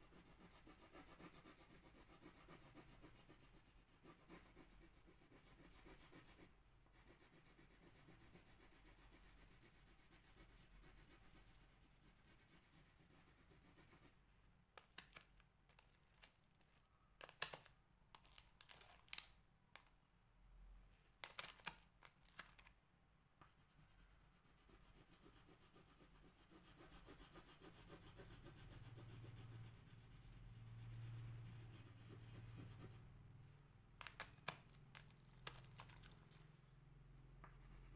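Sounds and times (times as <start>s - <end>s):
crayon scratching on paper: 0.0s - 14.2s, 23.5s - 33.1s.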